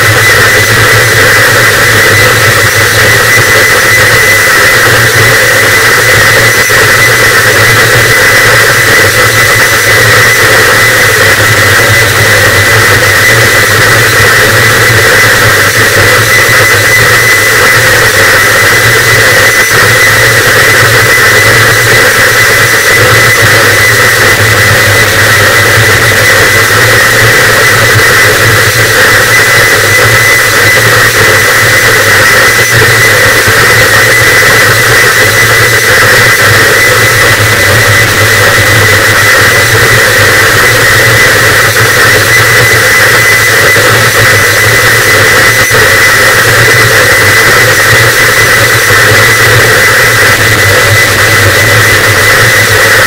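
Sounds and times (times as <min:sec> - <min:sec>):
distorted static noise wall: 0:00.0 - 0:53.0.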